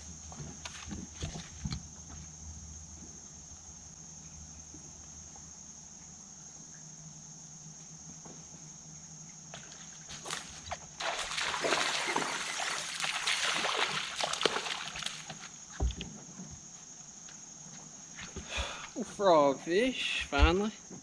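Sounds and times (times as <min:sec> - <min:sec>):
insect drone: 0:00.0 - 0:21.0
fish thrashing and splashing: 0:11.0 - 0:15.4.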